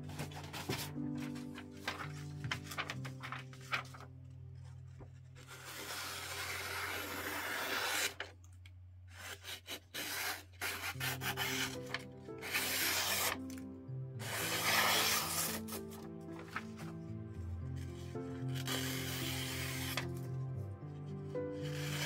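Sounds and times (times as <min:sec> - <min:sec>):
paper rustling and tearing: 0:00.0 - 0:08.3, 0:09.2 - 0:13.6, 0:14.2 - 0:16.9, 0:17.8 - 0:20.4
paper crackling: 0:00.0 - 0:08.4, 0:10.0 - 0:13.6, 0:14.2 - 0:17.0, 0:17.8 - 0:20.5
quiet background music: 0:00.0 - 0:22.0.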